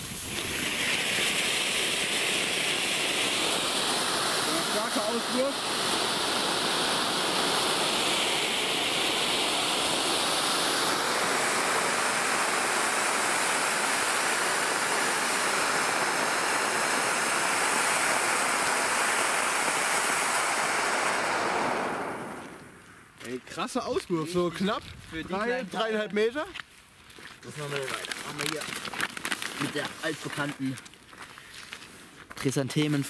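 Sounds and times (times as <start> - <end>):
firework fountains hissing: 0.0 - 23.2, 27.6 - 30.7.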